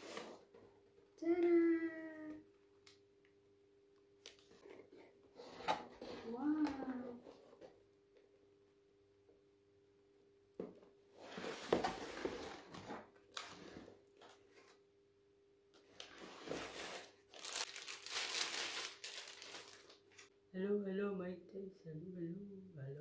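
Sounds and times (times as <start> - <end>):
plastic wrap crinkling: 15.9 - 20.3.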